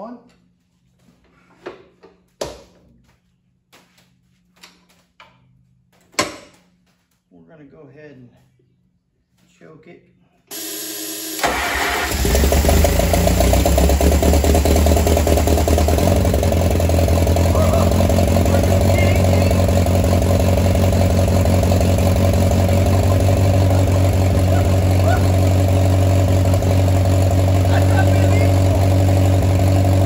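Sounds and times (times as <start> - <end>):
tractor engine running: 11.4 - 30.0.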